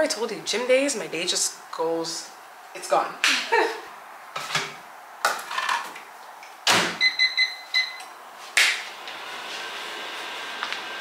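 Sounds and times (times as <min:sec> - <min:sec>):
high keypad beeps: 0:07.0 - 0:08.1
sharp clap: 0:08.6 - 0:08.8
microwave oven humming: 0:08.8 - 0:11.0.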